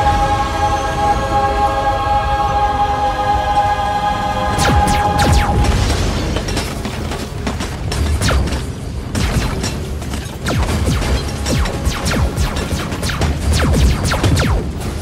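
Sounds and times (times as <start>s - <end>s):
held music chord: 0.0s - 5.8s
laser-gun shots: 4.6s - 6.0s, 8.2s - 15.0s
booming explosions: 4.6s - 7.1s.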